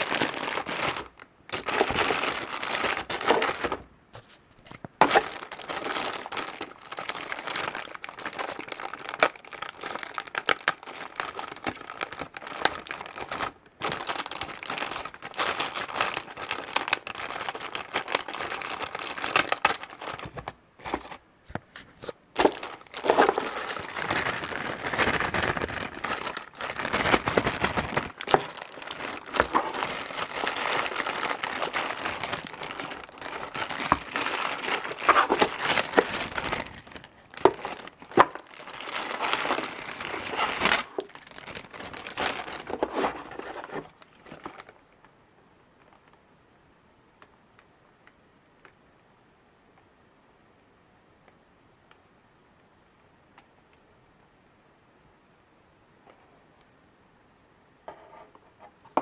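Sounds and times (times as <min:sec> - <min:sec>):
plastic packaging crinkling: 0:00.0 - 0:44.8.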